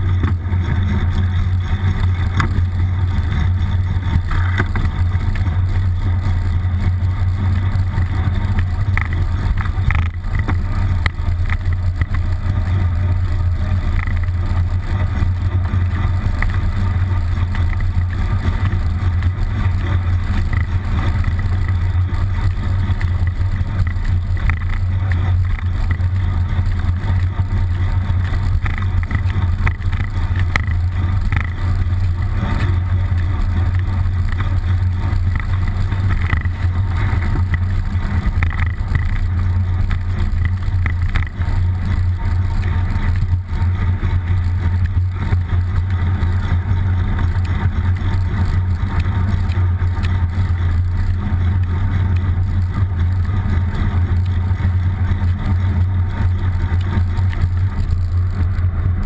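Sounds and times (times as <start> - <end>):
bicycle road rumble: 0.0 - 59.0
wind noise on camera: 0.0 - 59.0.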